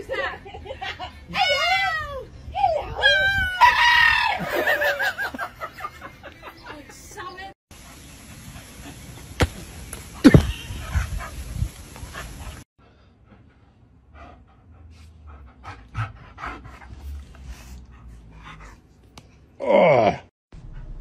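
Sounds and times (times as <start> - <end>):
dog panting: 13.2 - 18.9.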